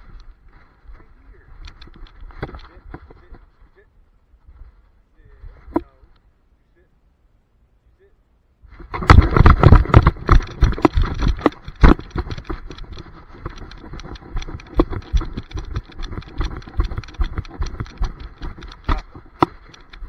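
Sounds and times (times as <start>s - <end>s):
camera knocking and thudding: 1.6s - 3.3s, 8.8s - 20.0s.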